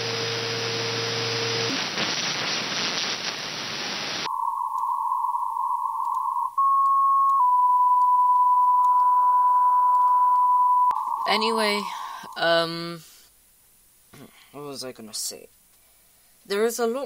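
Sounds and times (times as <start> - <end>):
radio static hiss: 0.0 - 6.5, 10.9 - 13.3
steady radio beep tone: 4.3 - 12.7.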